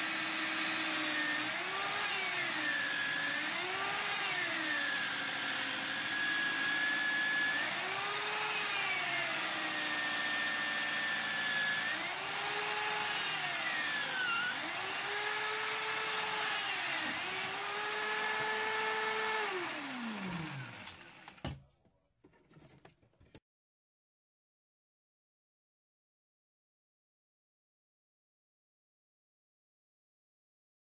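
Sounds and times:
electric drill cutting wood: 0:00.0 - 0:21.6.

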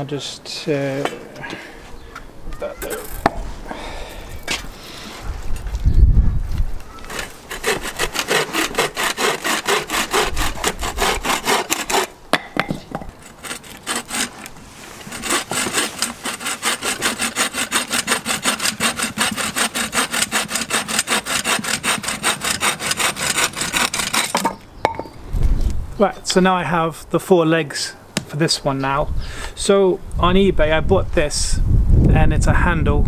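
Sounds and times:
bow saw cutting wood: 0:07.0 - 0:12.2, 0:13.2 - 0:24.6.

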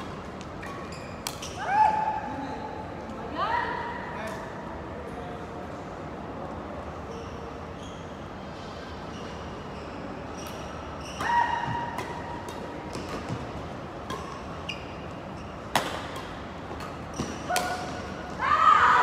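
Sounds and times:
large hall ambience: 0:00.0 - 0:19.0
shoes squealing on court floor: 0:00.6 - 0:01.7, 0:07.1 - 0:08.2, 0:09.1 - 0:12.0, 0:14.2 - 0:15.8, 0:17.0 - 0:18.5
racket hitting shuttlecock: 0:11.2 - 0:14.6, 0:15.7 - 0:18.4.

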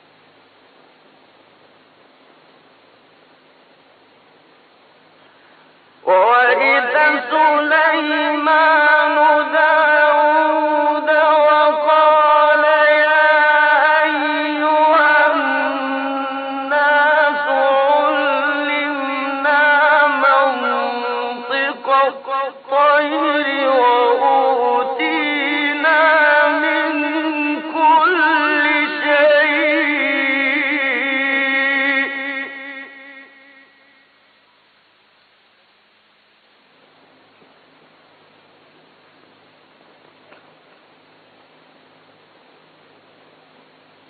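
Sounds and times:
man reciting melodically: 0:06.0 - 0:34.0.

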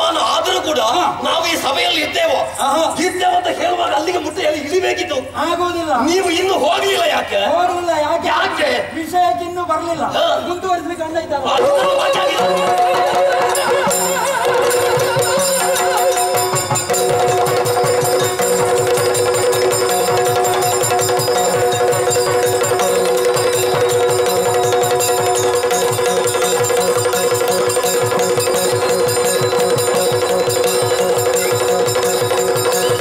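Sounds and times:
fast drumming: 0:11.5 - 0:33.0.

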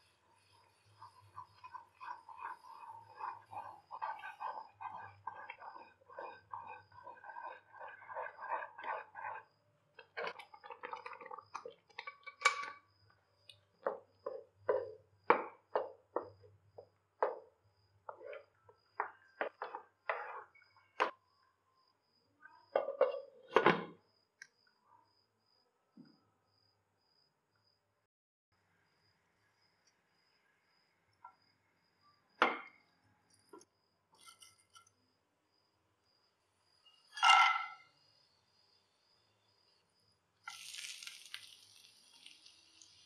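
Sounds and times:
spatula scraping a pan: 0:00.0 - 0:12.8, 0:18.1 - 0:21.1, 0:34.2 - 0:34.9.

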